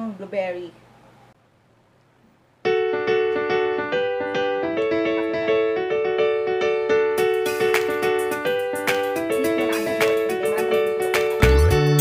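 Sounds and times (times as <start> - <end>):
keyboard music with short notes: 2.7 - 12.0.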